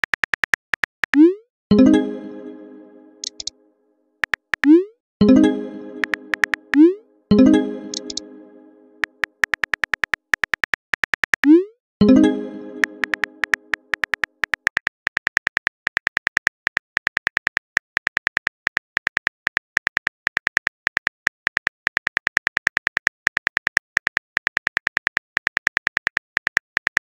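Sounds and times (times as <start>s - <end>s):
phone keyboard key clicks: 3.2s - 3.5s.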